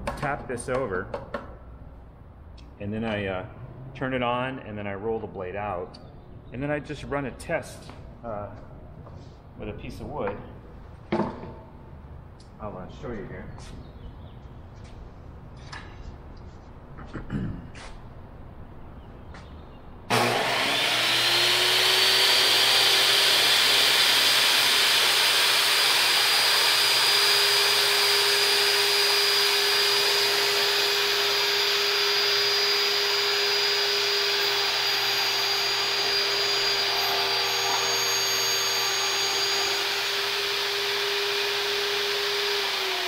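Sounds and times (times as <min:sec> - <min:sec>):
table saw motor whine: 0:20.1 - 0:43.0.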